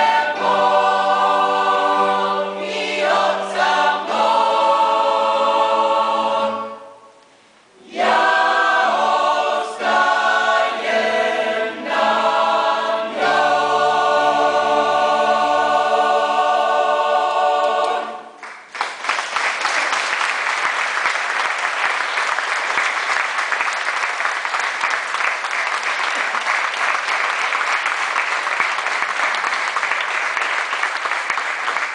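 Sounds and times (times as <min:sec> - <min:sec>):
choir singing: 0:00.0 - 0:07.1, 0:07.7 - 0:18.4
audience applauding: 0:18.4 - 0:31.9.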